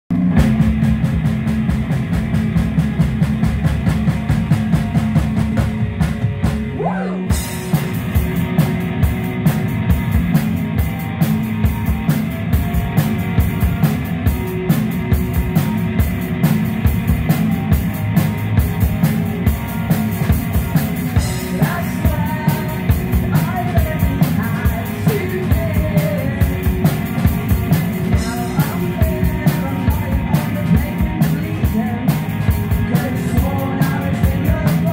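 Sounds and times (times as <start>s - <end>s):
drum kit beat: 0.1s - 34.9s
electric guitar: 0.1s - 34.9s
person singing: 6.6s - 7.6s, 21.2s - 27.1s, 28.1s - 34.9s.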